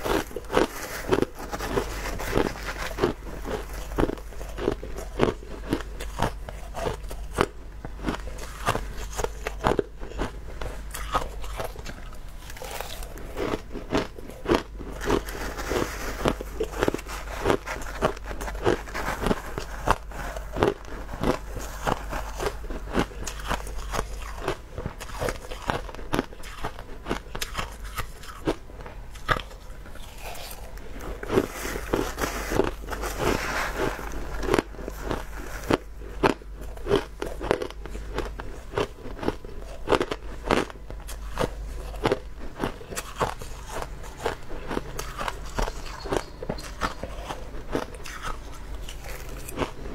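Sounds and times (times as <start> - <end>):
crushed ice crunching: 0.0 - 7.4, 10.9 - 28.6, 29.2 - 49.8.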